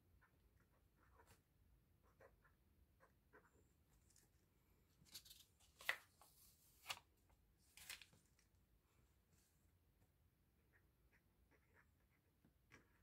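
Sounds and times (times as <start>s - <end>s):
plastic sleeves crinkling: 5.1s - 7.0s, 7.6s - 8.5s.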